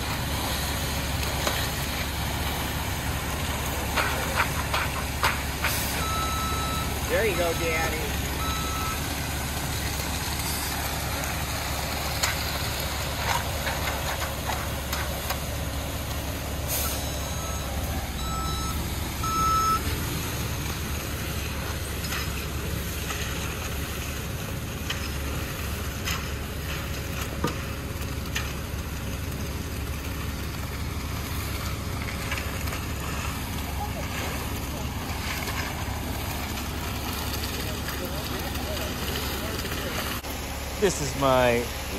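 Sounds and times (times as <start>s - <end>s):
truck diesel engine running: 0.0s - 41.9s
short beeps: 6.0s - 9.0s, 17.0s - 19.8s.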